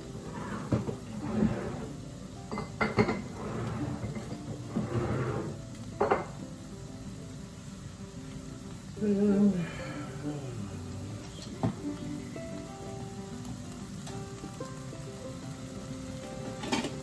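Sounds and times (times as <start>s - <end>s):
faint sizzle of frying: 0.0s - 17.0s
dishes and utensils clattering: 0.2s - 1.9s, 2.5s - 6.4s, 16.4s - 17.0s.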